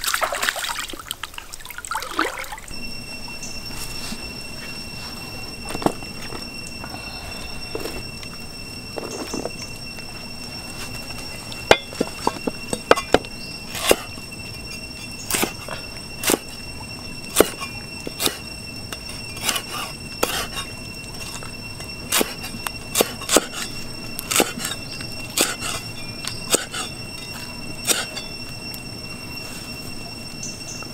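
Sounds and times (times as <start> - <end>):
steady high-pitched tone: 2.2 - 30.9
cleaver chopping on wooden block: 23.0 - 23.6.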